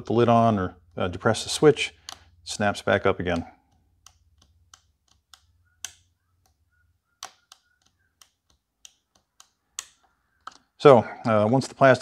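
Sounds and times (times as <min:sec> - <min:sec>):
micro switch clicking: 0:03.2 - 0:06.6.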